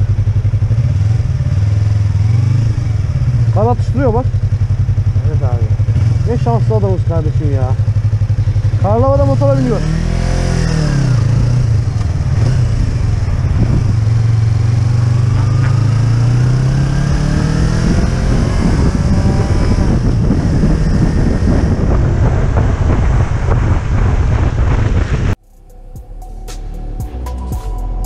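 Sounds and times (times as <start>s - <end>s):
motorcycle engine accelerating: 0.0s - 28.0s
wind noise on microphone: 9.8s - 25.4s.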